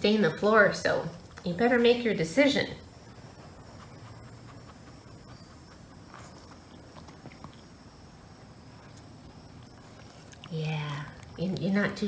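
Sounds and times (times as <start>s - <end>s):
dog sniffing: 2.8s - 7.8s.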